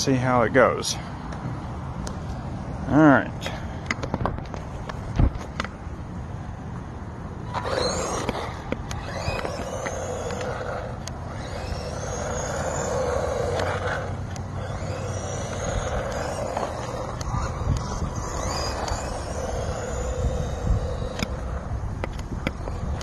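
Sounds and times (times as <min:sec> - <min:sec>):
toy truck motor whine: 0:07.4 - 0:23.0
tyre noise on concrete: 0:07.4 - 0:23.0.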